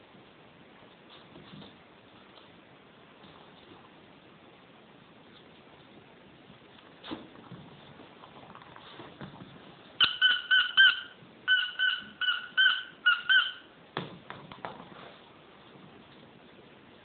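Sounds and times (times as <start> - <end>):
puppy yipping: 10.0 - 13.7.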